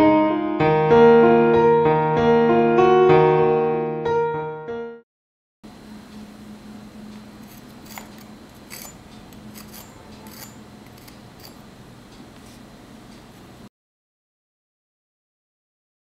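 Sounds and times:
low steady hum: 5.7s - 13.7s.

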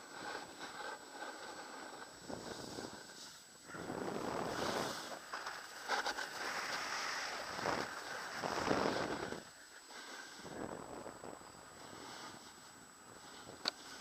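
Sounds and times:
skis scraping on packed snow: 0.0s - 14.0s
wind rushing over microphone: 1.9s - 9.6s, 10.4s - 13.7s.

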